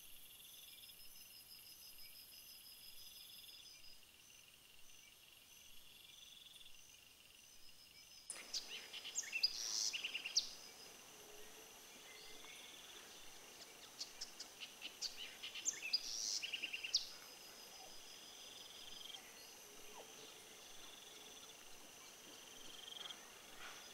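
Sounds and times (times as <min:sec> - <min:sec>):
insects trilling: 0:00.2 - 0:23.9
birds chirping and calling: 0:08.3 - 0:23.9.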